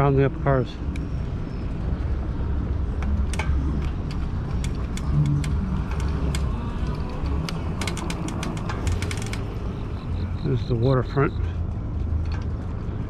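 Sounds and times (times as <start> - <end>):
low rumble of wind and road: 0.0 - 13.0
sharp clicks: 3.0 - 10.4.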